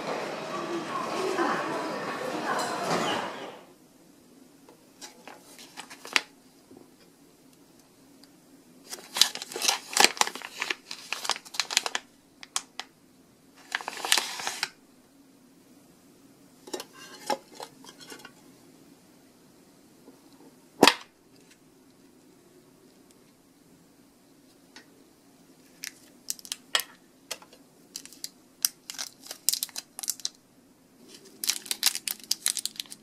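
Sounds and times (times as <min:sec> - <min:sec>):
cellophane crinkling and tearing: 0:05.5 - 0:06.3, 0:08.8 - 0:12.8, 0:13.6 - 0:14.8, 0:25.7 - 0:26.9, 0:27.9 - 0:30.4, 0:31.0 - 0:33.0.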